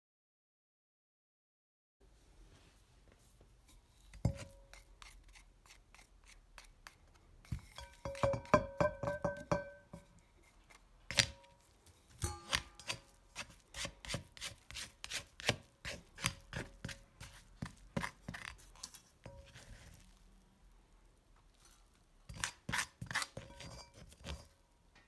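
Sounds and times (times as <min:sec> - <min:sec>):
spatula scraping ceramic mortar: 0:04.1 - 0:09.6, 0:12.4 - 0:20.2, 0:22.3 - 0:24.5.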